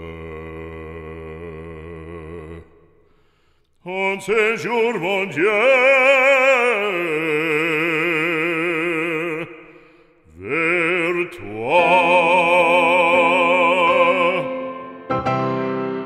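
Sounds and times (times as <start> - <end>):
solo voice singing with vibrato: 10.4 - 15.1.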